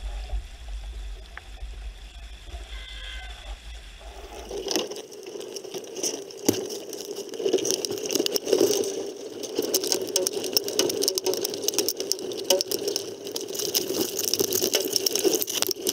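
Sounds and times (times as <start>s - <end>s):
water noise: 0.0s - 15.9s
wind: 0.0s - 15.9s
rigging clicks and rattles: 4.0s - 15.9s.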